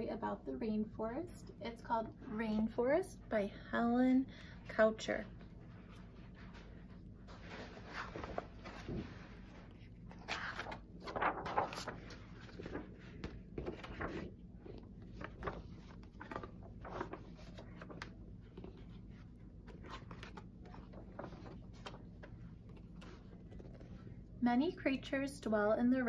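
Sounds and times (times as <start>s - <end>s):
rustling and scraping handling: 5.5s - 24.2s.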